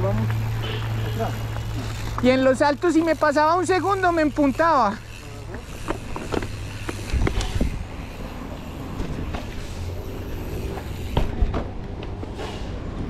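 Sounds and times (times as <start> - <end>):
tyres rumbling: 0.0 - 13.0
bike knocks and rattles: 4.6 - 13.0
wind buffeting microphone: 6.9 - 8.2.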